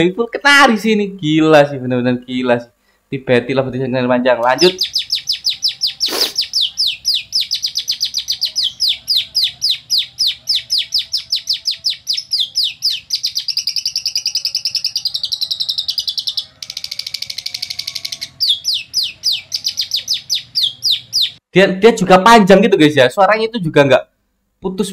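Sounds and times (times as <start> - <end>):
fast buzzy bird trill: 4.4 - 21.4
lovebird singing: 4.4 - 21.5.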